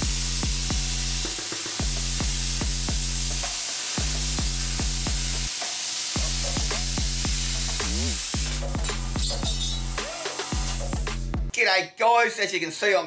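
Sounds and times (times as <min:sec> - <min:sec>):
plasma cutter arc hissing: 0:00.0 - 0:11.2
background music: 0:00.0 - 0:11.8.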